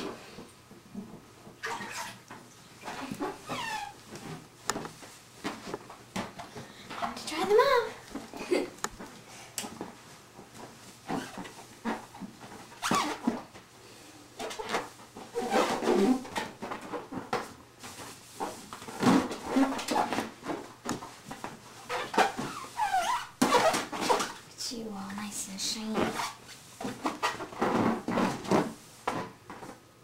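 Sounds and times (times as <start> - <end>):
towel rustling: 1.0 - 13.6, 14.4 - 24.5, 25.8 - 29.9
rubbery balloon squeaks: 1.6 - 4.4, 11.0 - 13.5, 14.4 - 17.4, 18.4 - 20.8, 21.8 - 24.5, 26.0 - 29.4.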